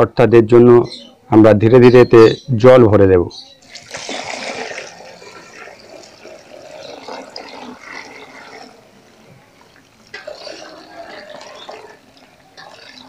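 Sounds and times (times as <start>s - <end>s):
water pouring and splashing in bowl: 3.6s - 13.0s.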